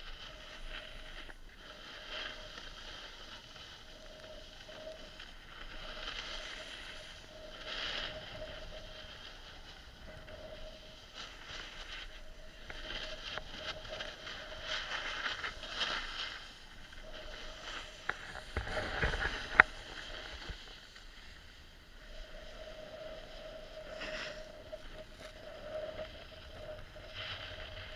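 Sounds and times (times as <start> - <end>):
snowboard scraping on snow: 0.1 - 27.9.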